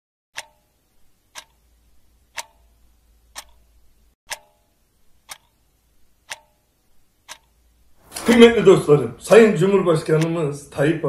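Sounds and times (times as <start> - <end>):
clock ticking: 0.4 - 8.0, 10.1 - 10.4.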